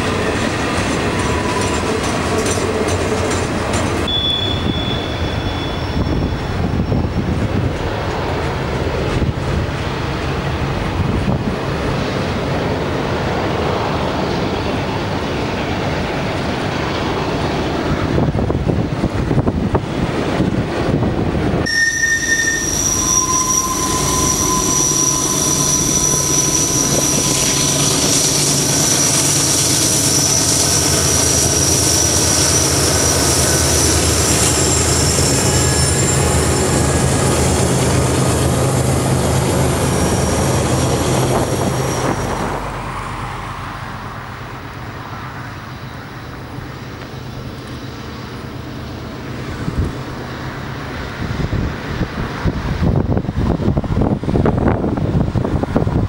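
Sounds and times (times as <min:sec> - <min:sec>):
wind buffeting microphone: 0:00.0 - 0:21.7, 0:32.9 - 0:44.5, 0:49.4 - 0:56.0
diesel locomotive engine drone: 0:00.0 - 0:56.0
steel wheels squealing: 0:00.1 - 0:07.7, 0:21.6 - 0:43.5, 0:45.4 - 0:49.5.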